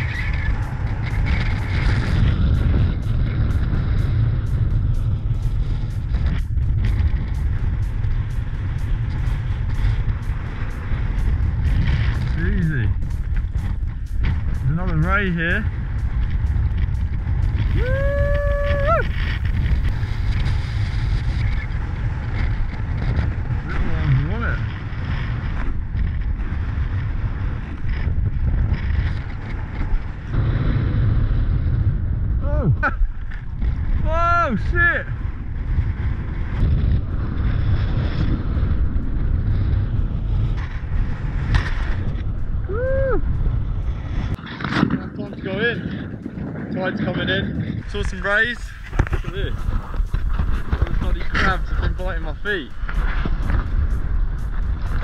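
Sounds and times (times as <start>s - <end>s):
light regular ticking: 0.0s - 17.8s
wind buffeting microphone: 0.0s - 55.0s.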